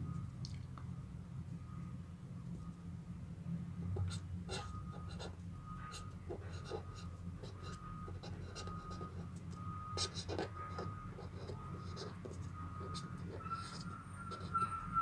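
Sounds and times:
marker scratching on paper: 0:04.0 - 0:09.3, 0:10.0 - 0:14.8.

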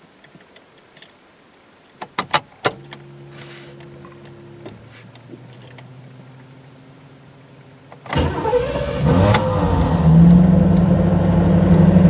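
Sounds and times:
faint steady hum: 0:00.0 - 0:12.0
fuel pump humming: 0:02.8 - 0:12.0.

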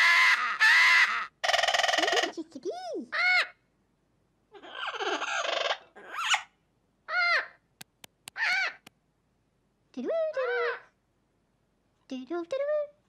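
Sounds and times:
sharp clicks: 0:07.8 - 0:08.9.

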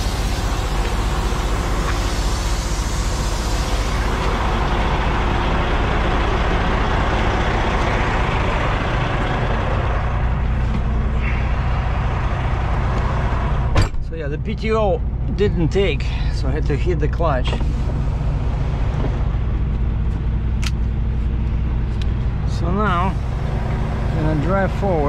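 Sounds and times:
air hiss: 0:00.0 - 0:04.5
diesel truck engine idling: 0:00.0 - 0:25.0.

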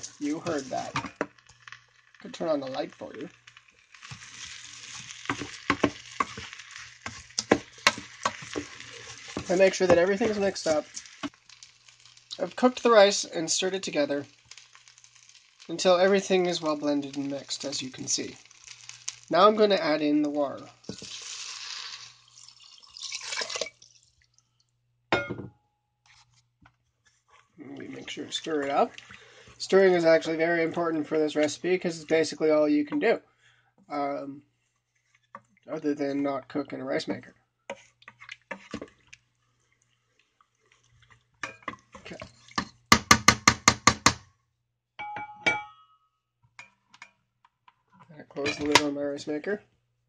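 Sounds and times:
spoon stirring rice in pot: 0:00.0 - 0:01.8, 0:02.6 - 0:12.3, 0:37.7 - 0:43.0
water pouring over rice: 0:00.0 - 0:24.4
sharp taps with ringing tone: 0:45.0 - 0:46.1.

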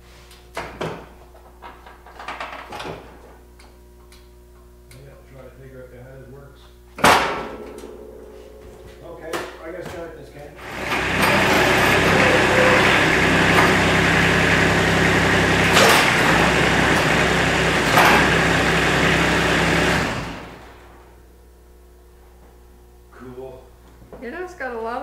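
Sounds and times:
clunks: 0:07.0 - 0:19.0
engine winding down: 0:10.6 - 0:21.0
diesel engine running: 0:10.6 - 0:21.1.

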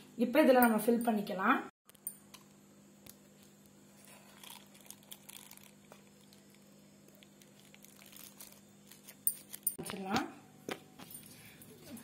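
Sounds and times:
faint steady hum: 0:00.0 - 0:12.0
plastic bag crinkling: 0:04.1 - 0:09.7.

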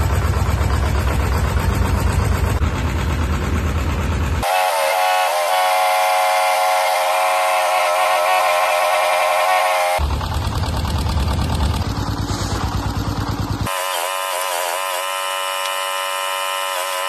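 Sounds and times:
engine rumbling: 0:00.0 - 0:04.4, 0:09.6 - 0:13.8.

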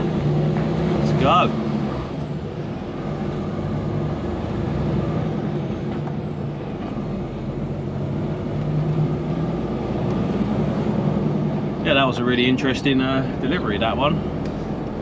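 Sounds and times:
diesel truck engine running: 0:00.0 - 0:15.0
road noise: 0:00.0 - 0:15.0.

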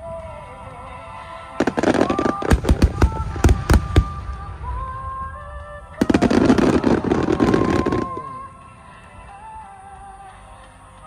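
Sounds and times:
music with long held notes: 0:00.0 - 0:11.0
fireworks bursting: 0:01.6 - 0:08.6.

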